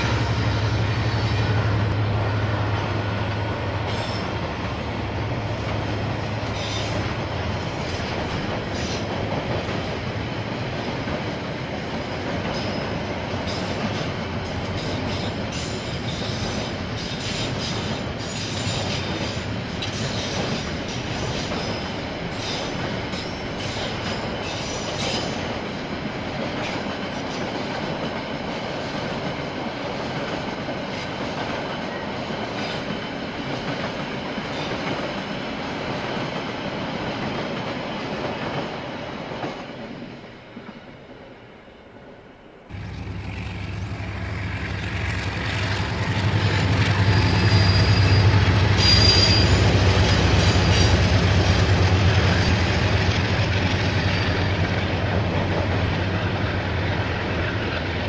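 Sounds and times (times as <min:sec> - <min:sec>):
train wheels clicking over rail joints: 0:00.0 - 0:39.8
diesel locomotive engine hum: 0:00.0 - 0:58.0
high wheel squeals: 0:45.5 - 0:51.2.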